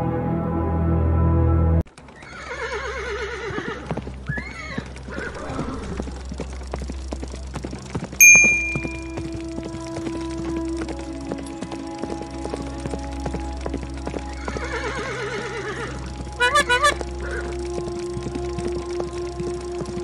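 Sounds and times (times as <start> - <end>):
music: 0.0 - 1.8, 5.7 - 20.0
hooves clip-clopping: 1.9 - 20.0
horse whinnying: 2.2 - 6.0, 14.4 - 17.5
bell strike: 8.2 - 9.2.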